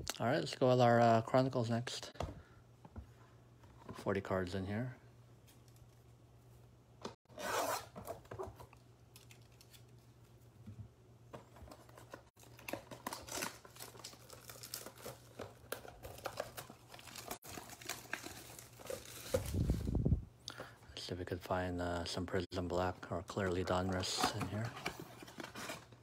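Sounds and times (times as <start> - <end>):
cardboard tearing and crinkling: 11.8 - 19.9.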